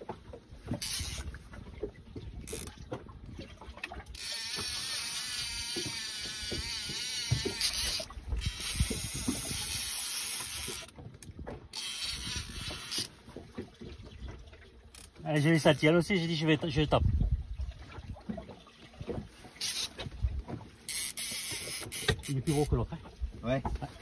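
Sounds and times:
fishing reel whirring: 0.7 - 1.4, 2.4 - 2.8, 4.1 - 11.0, 11.7 - 13.2, 14.9 - 16.0, 19.6 - 20.0, 20.9 - 22.7.

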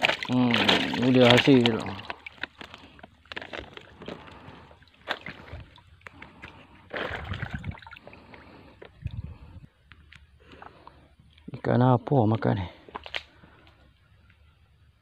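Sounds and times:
wet sloshing of fish: 0.0 - 10.8.

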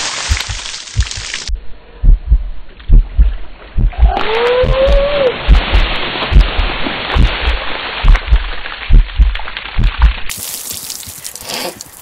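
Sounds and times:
water pouring and splashing: 0.0 - 1.5, 5.3 - 12.0
dull low thumps: 0.0 - 10.3
person crying out: 3.9 - 5.4.

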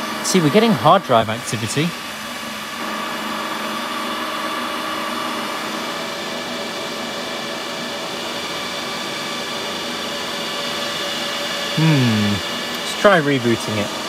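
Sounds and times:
cooling fans rushing air: 0.0 - 14.0
high whining tones: 8.4 - 13.8.

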